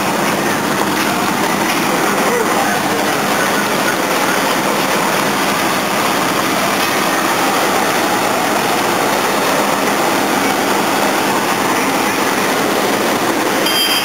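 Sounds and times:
fire engines running: 0:00.0 - 0:14.0.

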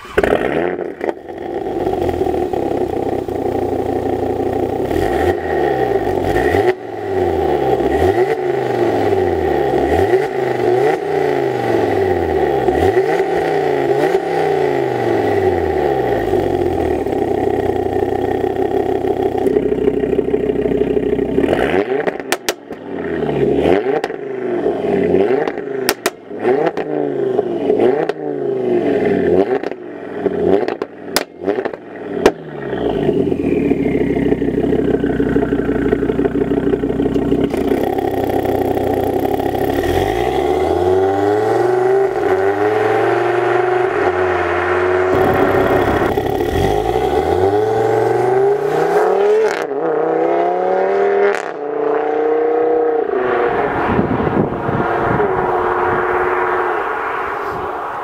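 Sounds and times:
exhaust cracks: 0:00.0 - 0:06.8, 0:16.2 - 0:24.2, 0:25.2 - 0:27.0, 0:30.5 - 0:48.7
car engine revving: 0:00.0 - 0:58.0.

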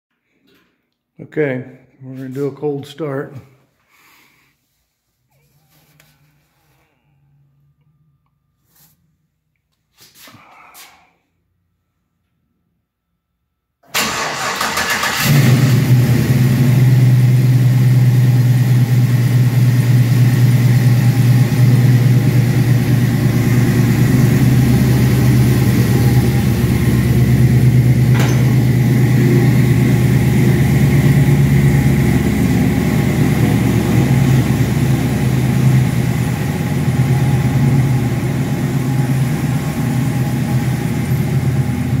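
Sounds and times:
car engine idling: 0:14.0 - 0:42.0.

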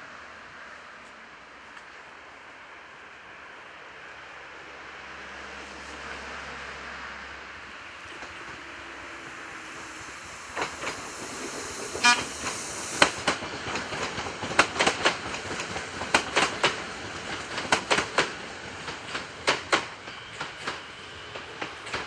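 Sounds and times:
train wheels clicking over rail joints: 0:08.0 - 0:22.0
train horn toot: 0:12.0 - 0:12.5.

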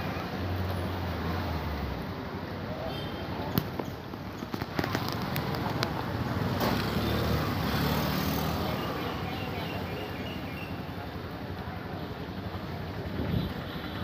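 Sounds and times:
motor vehicle passing: 0:04.8 - 0:10.2.

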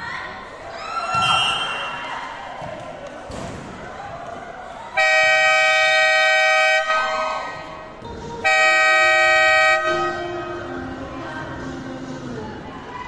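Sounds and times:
horn blasts: 0:05.0 - 0:07.1, 0:08.4 - 0:10.7.

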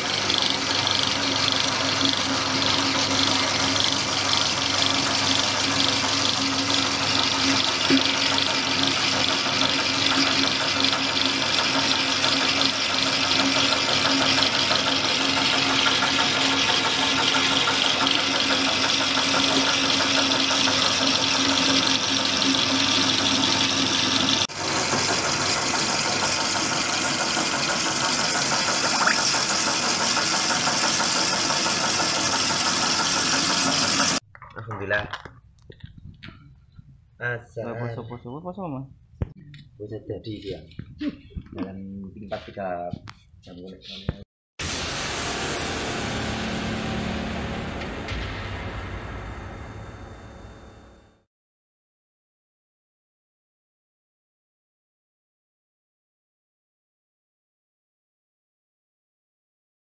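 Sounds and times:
feed pellet press humming and grinding: 0:00.0 - 0:34.2, 0:44.6 - 0:50.6.

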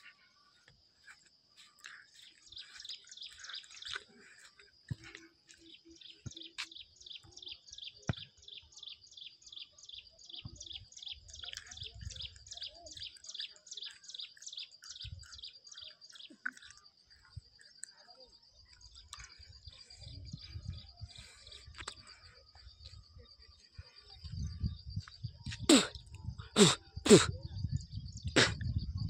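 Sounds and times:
high repeated chirping: 0:01.1 - 0:08.7.

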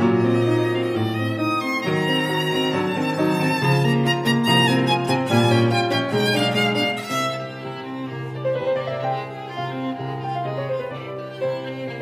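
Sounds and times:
slow bowed string melody: 0:00.0 - 0:12.0.

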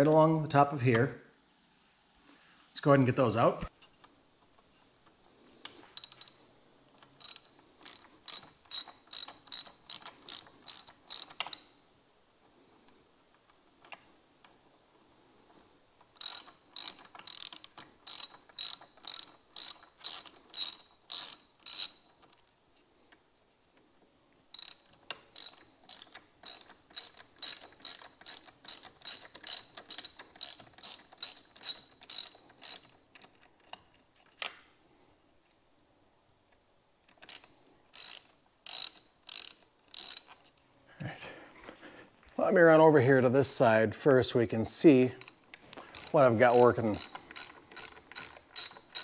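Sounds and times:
ratchet driver clicking: 0:06.0 - 0:06.4, 0:07.0 - 0:11.7, 0:16.0 - 0:22.4, 0:24.5 - 0:34.5, 0:37.1 - 0:40.5, 0:45.2 - 0:49.0.

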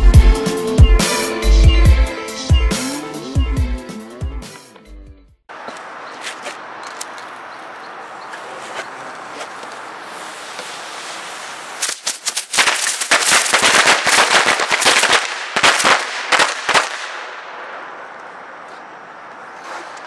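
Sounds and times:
firecrackers cracking: 0:09.2 - 0:18.2
fizzing hiss: 0:09.8 - 0:13.1.

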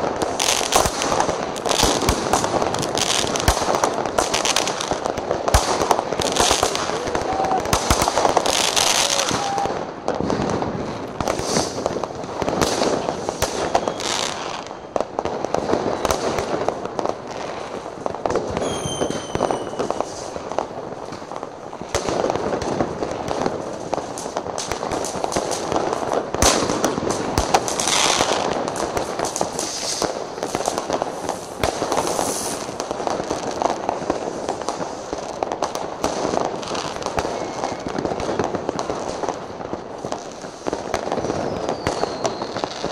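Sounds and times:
fireworks bangs and crackling: 0:00.0 - 0:42.9
falling firework whistle: 0:06.4 - 0:09.9, 0:12.6 - 0:14.8, 0:18.5 - 0:20.4, 0:36.8 - 0:38.2, 0:41.1 - 0:42.9.

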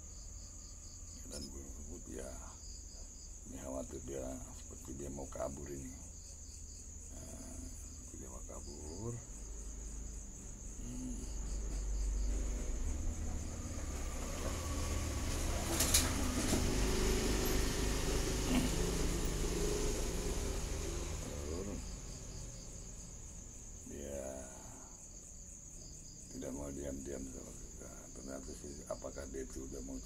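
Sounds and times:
crickets chirring: 0:00.0 - 0:30.0
low rumble and rustling: 0:00.8 - 0:20.3.

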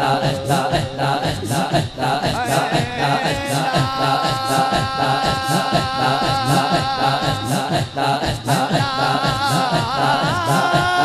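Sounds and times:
man chanting melodically: 0:00.0 - 0:11.0
rhythmic beat: 0:00.0 - 0:11.0.

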